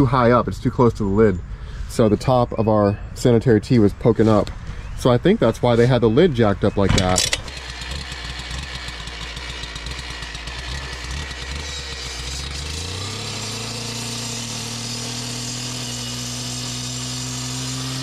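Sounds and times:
saw blade cutting concrete: 5.6s - 18.0s
cut-off saw engine: 6.7s - 18.0s.

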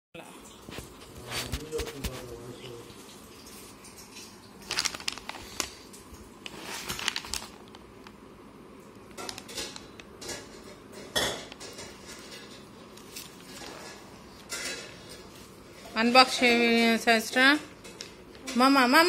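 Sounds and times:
paper envelope rustling and crinkling: 4.6s - 8.2s, 9.0s - 10.6s, 11.6s - 14.1s.

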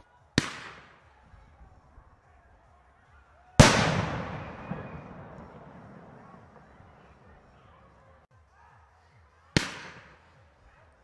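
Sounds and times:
faint firework pops: 3.6s - 7.7s
firework shell bang with echo: 3.6s - 7.7s.

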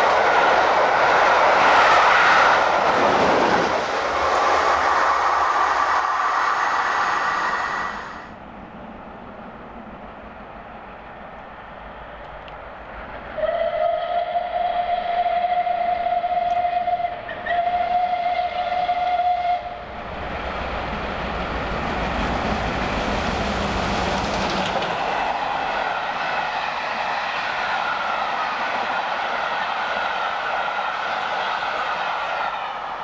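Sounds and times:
train rushing past: 0.0s - 33.0s
steam locomotive whistle blasts: 13.4s - 19.8s.

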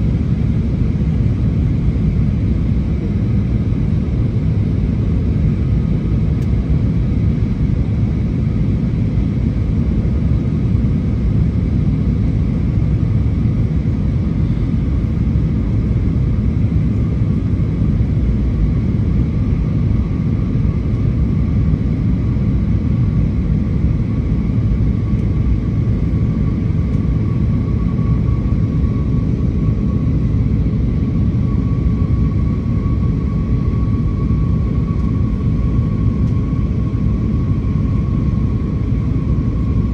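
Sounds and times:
jet engine and airflow rumble: 0.0s - 39.9s
thin steady whine: 10.6s - 39.9s.

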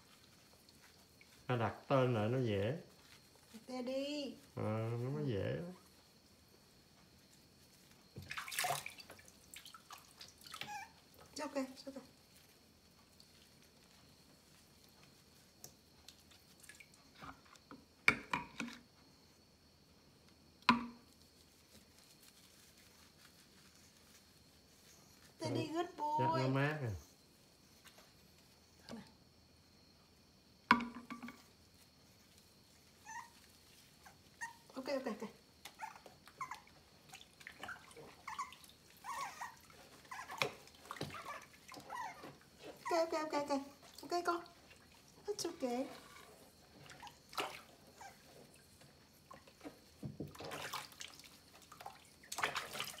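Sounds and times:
squishing and dripping water: 0.0s - 53.0s
sharp knocks or splashes: 8.2s - 9.2s, 20.7s - 21.1s, 30.7s - 31.4s, 51.8s - 53.0s
puppy whimpering: 10.5s - 11.0s, 33.0s - 33.4s, 34.0s - 34.7s, 35.7s - 43.1s, 47.9s - 48.4s.

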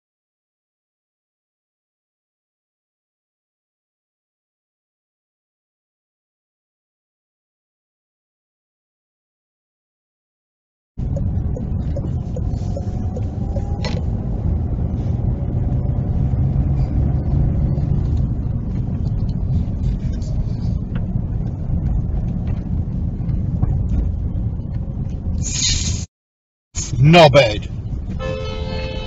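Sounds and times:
car engine and tyres rumbling: 11.0s - 26.1s, 26.8s - 29.0s
loud hissy burst: 25.4s - 26.1s.

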